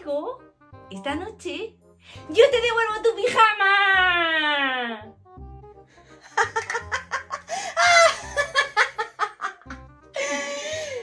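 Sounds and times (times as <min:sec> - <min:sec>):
person laughing: 0:06.2 - 0:10.9.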